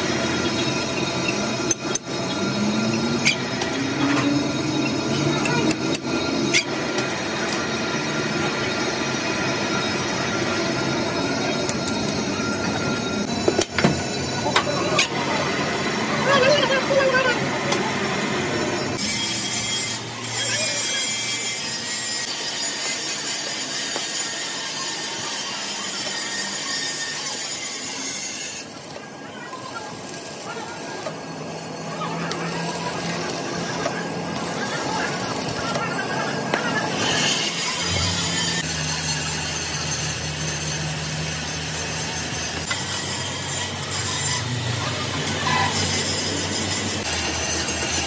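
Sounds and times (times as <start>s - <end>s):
arc welding crackle: 20.4s - 31.2s, 32.0s - 35.9s.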